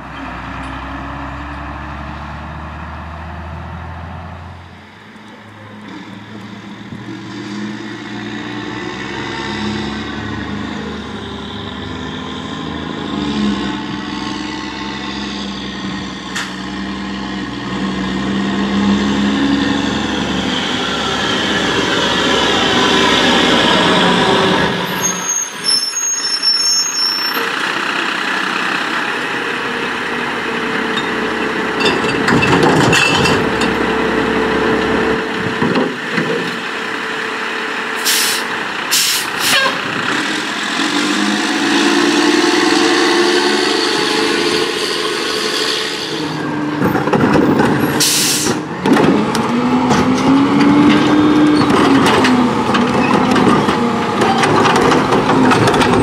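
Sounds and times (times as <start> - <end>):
garbage truck diesel engine: 0.0 - 56.0
air brake hisses: 38.0 - 39.8, 48.0 - 48.6.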